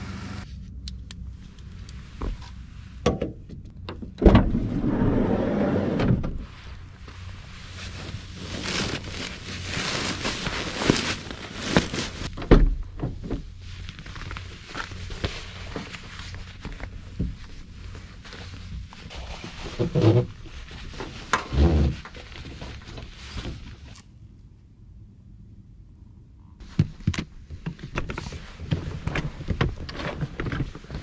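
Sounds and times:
rustling: 0:06.3 - 0:12.4, 0:13.2 - 0:24.1.

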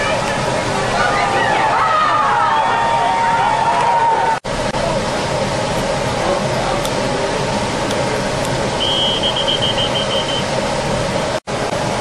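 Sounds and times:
rushing outdoor background noise: 0:00.0 - 0:12.0
pea whistle trilling: 0:08.8 - 0:10.5.

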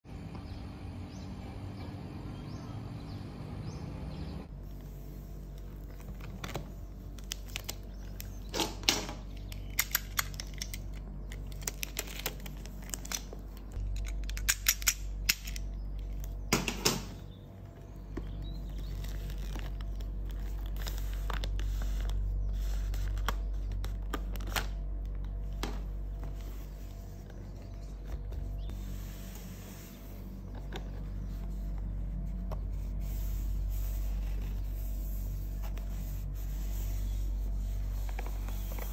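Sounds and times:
steady low hum: 0:00.1 - 0:38.9
plastic shrink-wrap crinkling: 0:05.8 - 0:08.5, 0:10.3 - 0:14.2, 0:18.6 - 0:24.8.

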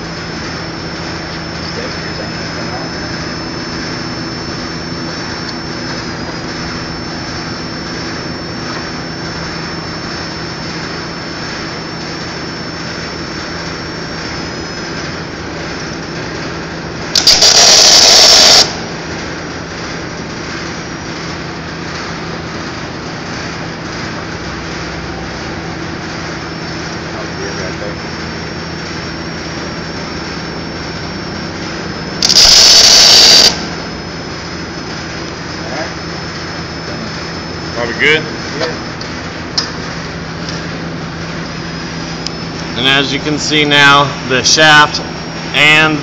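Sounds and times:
arc weld crackling: 0:00.0 - 0:22.0, 0:28.8 - 0:35.8
welding machine humming: 0:00.0 - 0:46.0.

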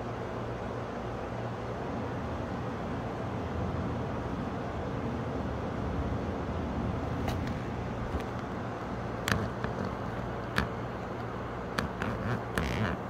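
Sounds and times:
street traffic: 0:02.8 - 0:13.0.

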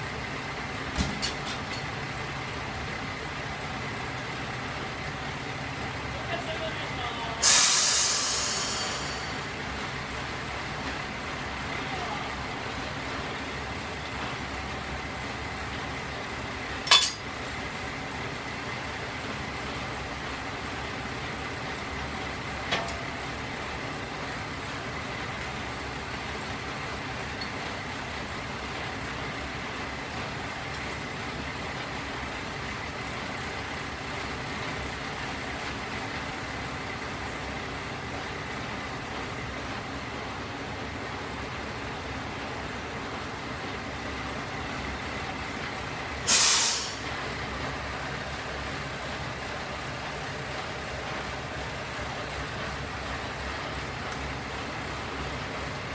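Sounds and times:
diesel railcars idling: 0:00.0 - 0:55.9
light metallic clink: 0:16.9 - 0:17.2
metallic coupling clank: 0:16.9 - 0:17.2.

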